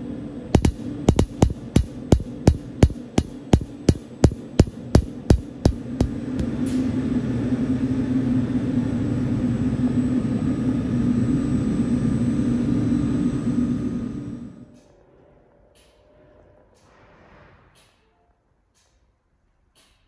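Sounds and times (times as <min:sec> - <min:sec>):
low hum: 0:00.0 - 0:14.7
oil mist separator running: 0:00.6 - 0:06.5.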